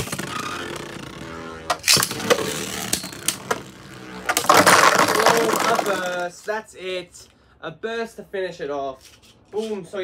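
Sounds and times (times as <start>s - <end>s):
top bursting apart clatter: 4.3s - 6.2s.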